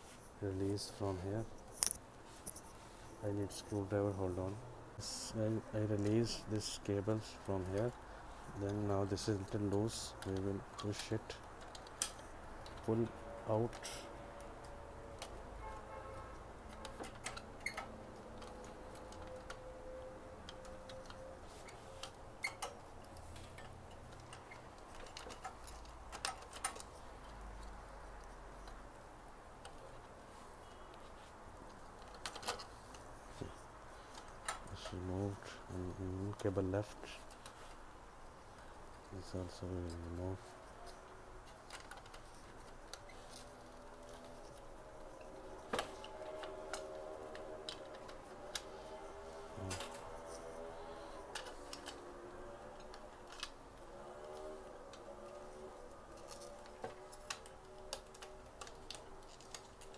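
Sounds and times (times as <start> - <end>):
cable connectors being handled: 0.0 - 59.9
plastic parts clicking and tapping: 8.6 - 12.9, 16.6 - 28.9, 30.9 - 35.0, 39.8 - 59.9.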